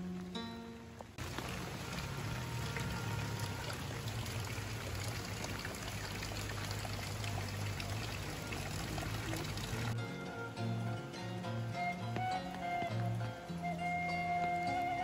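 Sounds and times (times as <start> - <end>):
running water pouring and trickling: 0.0 - 10.0, 11.8 - 15.0.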